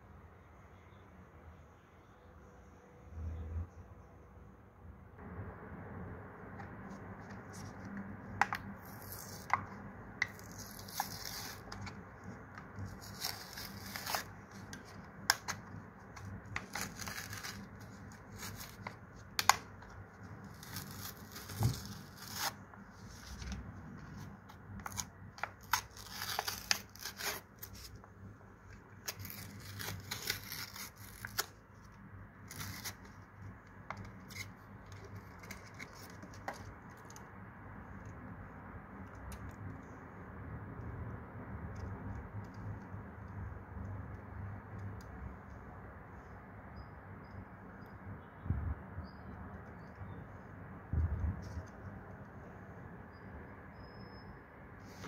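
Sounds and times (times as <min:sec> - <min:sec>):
plastic crinkling: 0:07.2 - 0:28.0, 0:29.0 - 0:33.2
cardboard tearing: 0:10.3 - 0:19.8, 0:20.4 - 0:23.6, 0:24.2 - 0:28.0, 0:29.0 - 0:31.6, 0:32.4 - 0:33.1.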